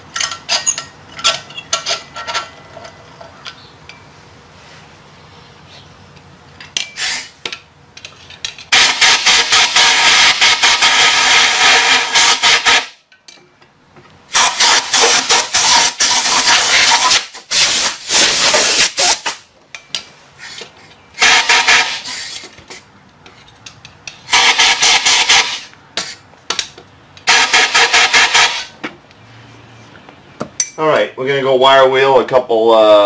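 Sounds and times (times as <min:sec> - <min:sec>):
compressed air hissing: 0:07.0 - 0:07.4, 0:08.7 - 0:12.9, 0:14.3 - 0:19.4, 0:20.4 - 0:22.9, 0:24.3 - 0:26.3, 0:27.2 - 0:28.8.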